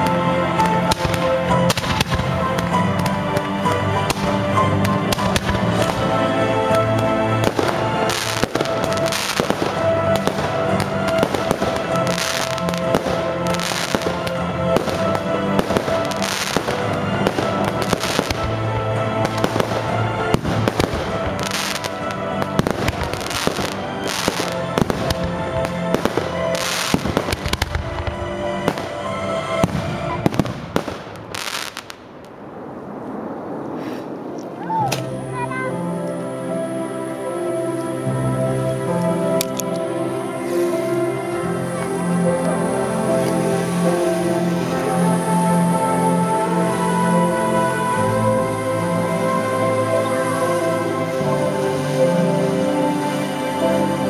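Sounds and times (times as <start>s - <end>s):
music playing: 0.0s - 32.0s, 34.4s - 54.0s
fireworks bangs and pops: 0.0s - 35.2s.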